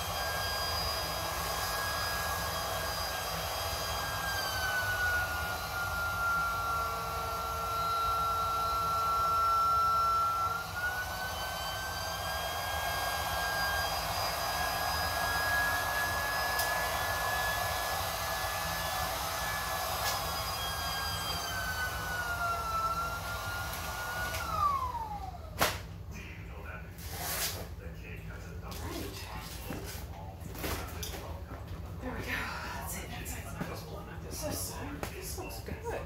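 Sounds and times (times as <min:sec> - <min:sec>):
electric air pump whining: 0:00.0 - 0:26.1, 0:27.0 - 0:27.8.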